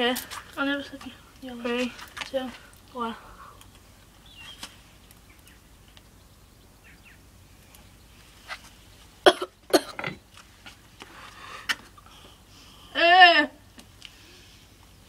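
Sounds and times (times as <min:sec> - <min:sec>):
person coughing hard: 0:09.3 - 0:10.2.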